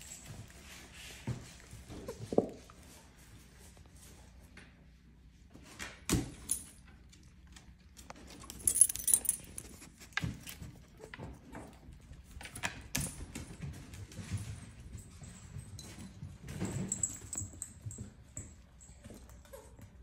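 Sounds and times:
collar tag jingling: 8.2 - 10.0.

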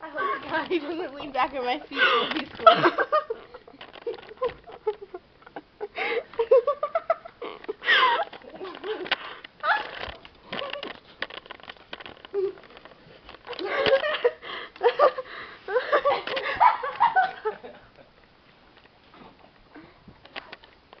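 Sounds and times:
people giggling and laughing: 1.6 - 10.0, 13.5 - 18.2.

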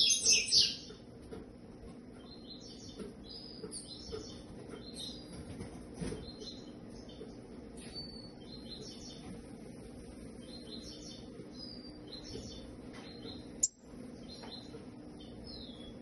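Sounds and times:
songbird chirping: 10.3 - 16.0.

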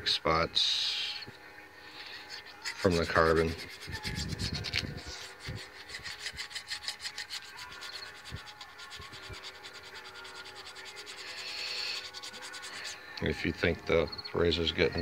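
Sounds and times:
razor blade scraping metal: 2.3 - 13.0.

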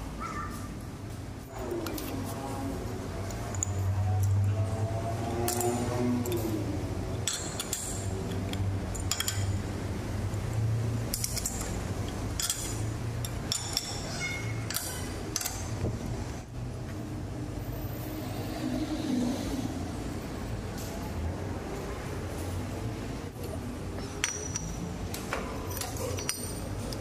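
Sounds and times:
wrench clinking on metal: 3.3 - 4.4, 7.2 - 9.7, 11.1 - 15.8, 24.0 - 24.9, 25.6 - 27.0.

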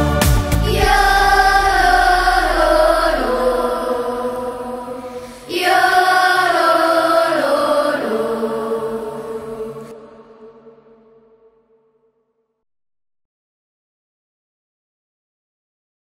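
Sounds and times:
vocal group singing chords: 0.0 - 11.5.

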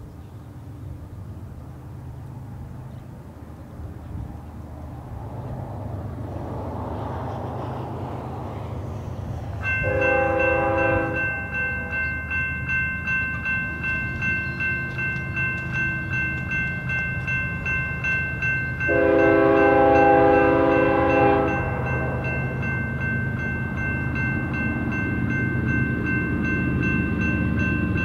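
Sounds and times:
crossing warning bell ringing: 9.6 - 28.0
locomotive air horn blasts: 9.8 - 12.0, 18.9 - 22.3.

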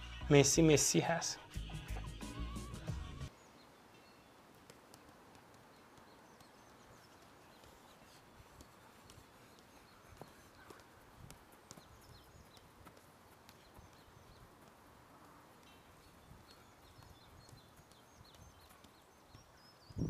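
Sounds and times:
football taps on turf: 4.6 - 14.8, 15.6 - 19.5
faint bird chirps: 5.6 - 11.1, 15.6 - 20.0.

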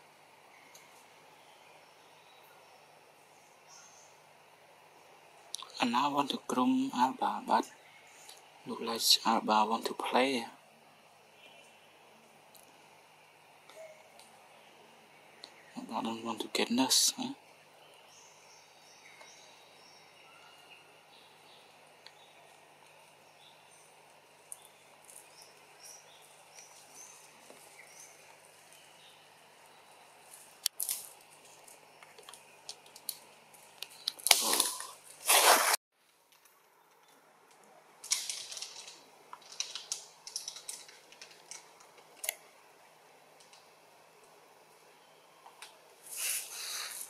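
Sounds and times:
small birds chirping: 0.3 - 35.1
crackly rustling and clicks: 23.8 - 29.0, 30.2 - 35.4, 36.0 - 42.5, 43.3 - 44.4
sharp clicks: 37.5 - 42.4.

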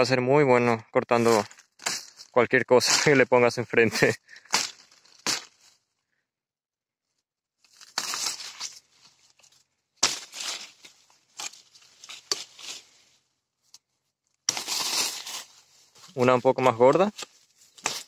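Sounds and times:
knife slashing branches and leaves: 4.3 - 5.7, 7.7 - 13.0, 14.4 - 16.0, 17.0 - 18.0.

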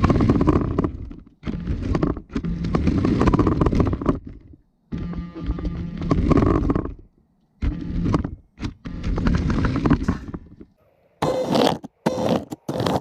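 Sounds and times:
chassis rattling over bricks: 0.0 - 4.6.

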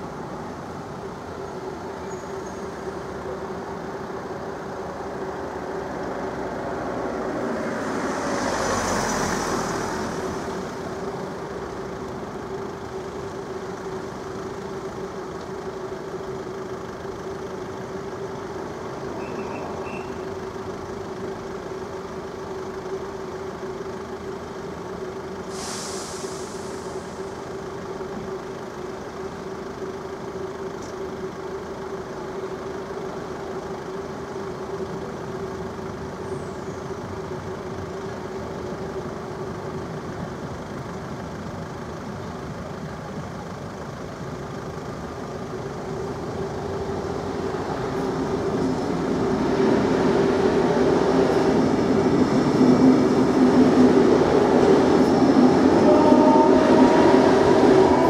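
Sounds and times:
electric train passing: 0.0 - 58.0
train rising whine: 0.0 - 58.0
level crossing warning signal: 45.0 - 58.0.

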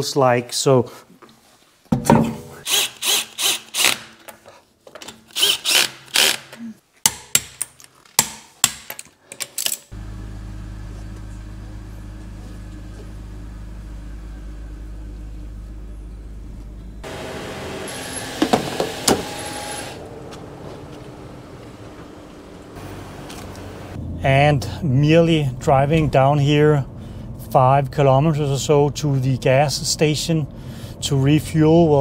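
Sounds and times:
cordless drill bursts: 2.6 - 4.1, 5.3 - 6.5, 17.1 - 20.0
car driving drone: 10.0 - 28.9.

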